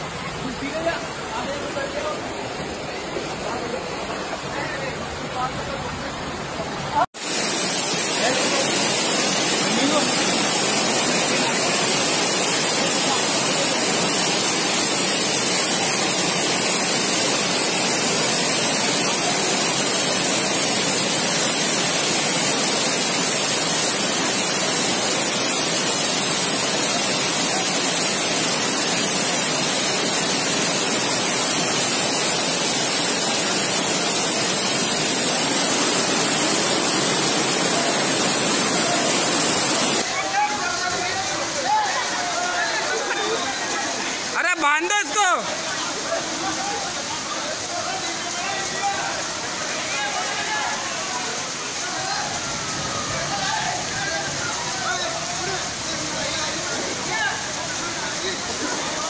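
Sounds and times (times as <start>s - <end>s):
floodwater rushing: 0.0s - 59.0s.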